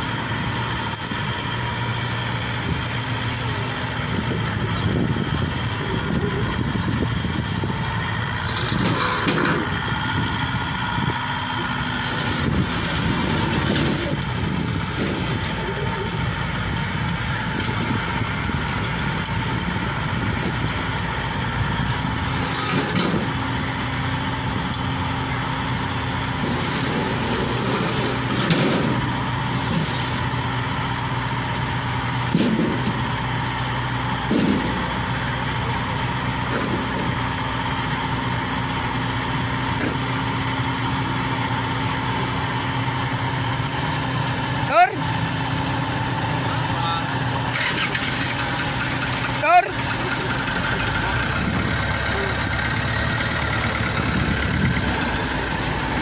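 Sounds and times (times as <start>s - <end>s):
harvester engine running: 0.0s - 56.0s
knocks on metal ramps: 32.3s - 33.0s.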